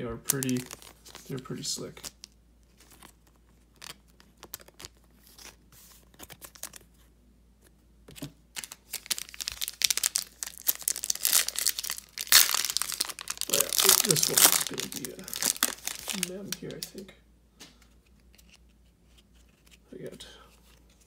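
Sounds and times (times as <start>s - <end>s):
foil pack crinkling and tearing: 0.2s - 5.6s, 8.6s - 17.0s.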